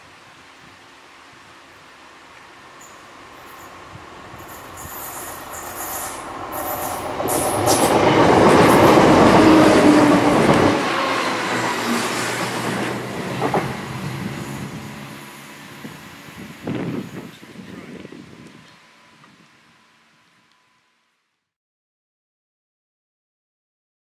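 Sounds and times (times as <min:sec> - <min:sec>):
diesel train passing: 0:00.8 - 0:17.7.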